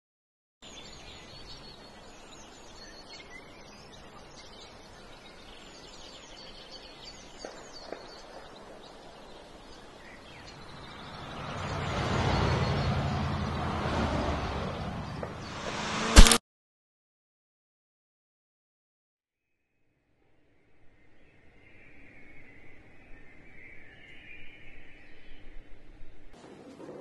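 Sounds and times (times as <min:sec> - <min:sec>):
small birds chirping: 0:00.6 - 0:15.9, 0:21.0 - 0:26.7
vehicle passing on road: 0:09.4 - 0:16.4.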